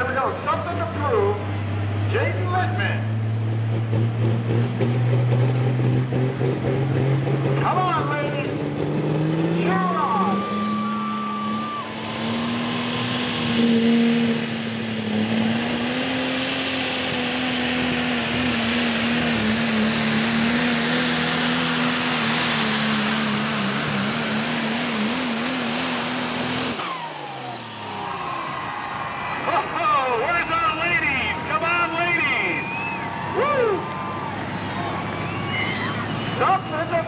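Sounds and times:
diesel truck engine at full throttle: 0:00.0 - 0:37.0
turbocharger whistle: 0:09.6 - 0:14.4, 0:30.4 - 0:34.2, 0:34.8 - 0:37.0.

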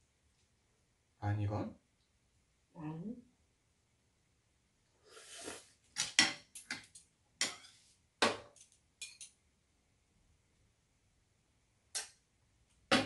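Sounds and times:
utensil scraping a pan: 0:05.1 - 0:05.7, 0:07.4 - 0:07.9
metal utensils clinking: 0:08.6 - 0:09.4.

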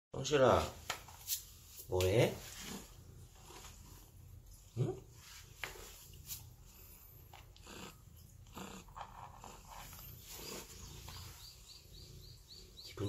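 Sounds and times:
cat purring: 0:02.4 - 0:13.0
cat grumbling: 0:07.4 - 0:10.9.

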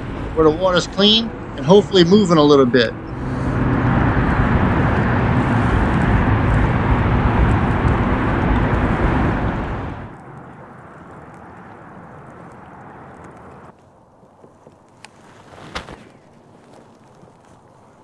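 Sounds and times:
traffic rumbling on bridge overhead: 0:00.0 - 0:14.8
wind and water hiss: 0:03.1 - 0:18.0.

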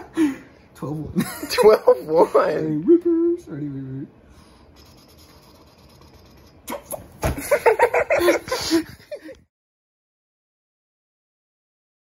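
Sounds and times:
man laughing excitedly: 0:07.3 - 0:09.4.

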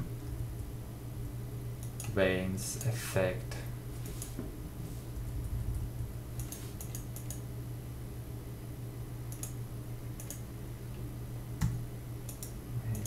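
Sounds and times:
steady low hum: 0:00.0 - 0:13.0
keyboard and mouse clicks: 0:06.4 - 0:07.4, 0:09.3 - 0:09.6, 0:10.2 - 0:10.4, 0:11.6 - 0:13.0.

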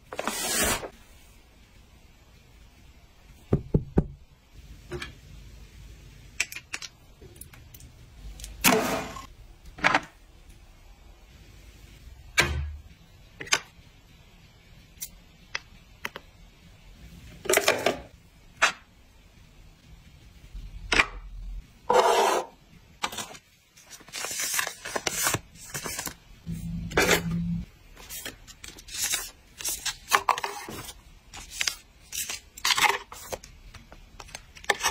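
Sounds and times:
sachets crinkling and rustling: 0:23.1 - 0:26.2, 0:28.0 - 0:34.9.

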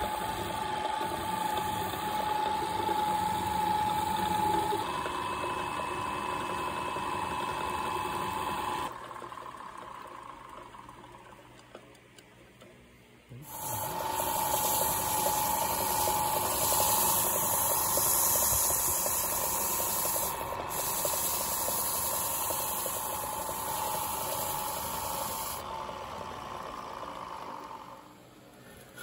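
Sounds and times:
wood lathe motor whine: 0:00.0 - 0:11.3, 0:13.4 - 0:28.3
plant fibre hissing on spinning wood: 0:13.5 - 0:25.6.

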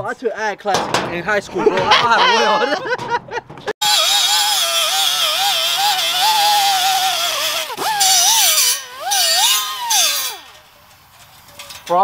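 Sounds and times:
die grinder whining: 0:03.8 - 0:10.6
wire wheel hissing on metal: 0:03.8 - 0:10.8.

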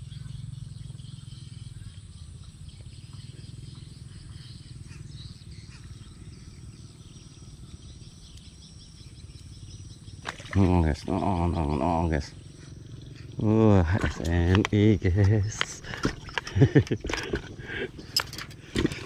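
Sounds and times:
high-pitched insect drone: 0:00.0 - 0:13.9
insect chirping calls: 0:00.0 - 0:19.0.

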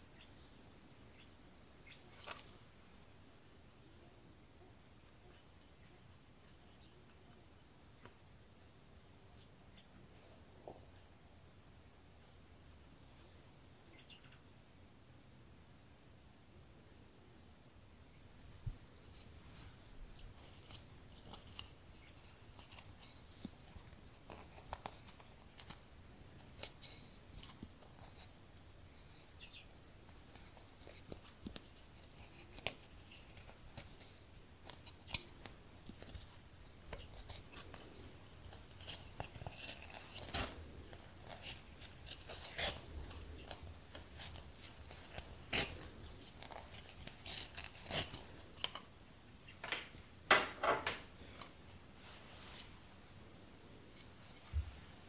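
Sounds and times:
rustling of thread and cloth: 0:01.8 - 0:03.2, 0:18.0 - 0:55.0.

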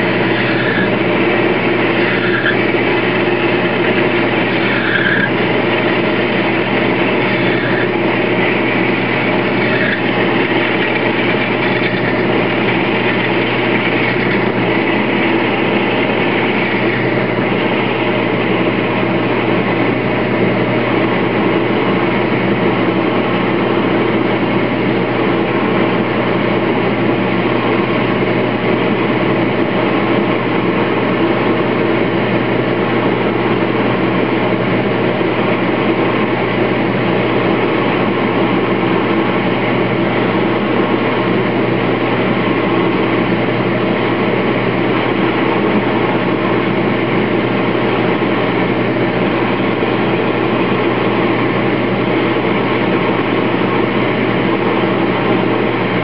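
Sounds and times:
drill cutting metal: 0:00.0 - 0:18.8
lathe motor humming: 0:00.0 - 0:56.0.

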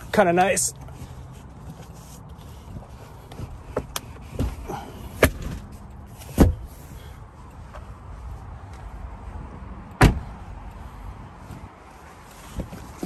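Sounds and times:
car door shutting thud: 0:06.3 - 0:06.7, 0:10.0 - 0:10.3.

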